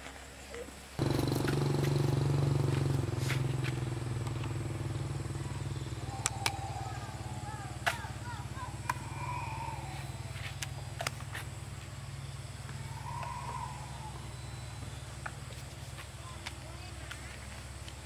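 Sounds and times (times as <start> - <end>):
motorbike engine idling: 1.0 - 18.0
faint voices: 5.4 - 12.0.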